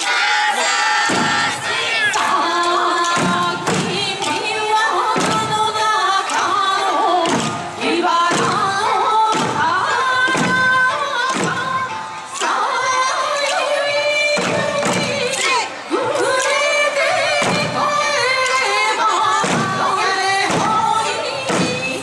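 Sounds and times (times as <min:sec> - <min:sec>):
folk song singing: 0:00.0 - 0:22.0
hand drums struck: 0:01.1 - 0:06.6, 0:07.2 - 0:12.5, 0:19.4 - 0:22.0.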